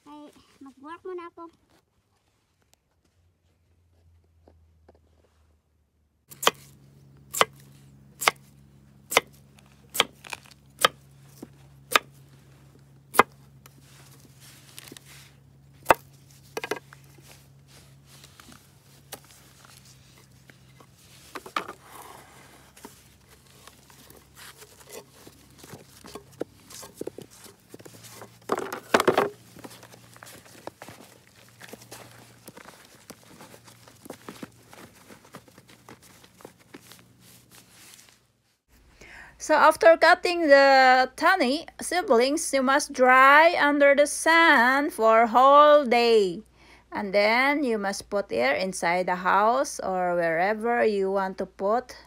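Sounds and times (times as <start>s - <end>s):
knife chopping on wooden board: 8.2s - 8.4s, 9.1s - 9.3s
rustling scrape: 9.4s - 38.6s.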